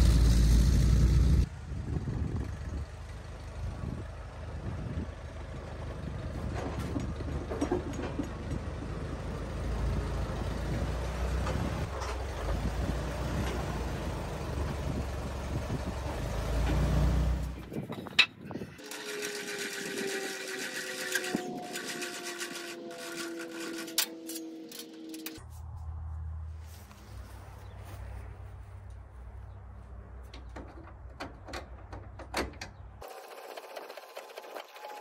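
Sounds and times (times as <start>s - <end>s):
tractor engine running: 0.0s - 25.4s, 29.9s - 35.0s
hand-cranked jack whirring: 17.6s - 25.4s.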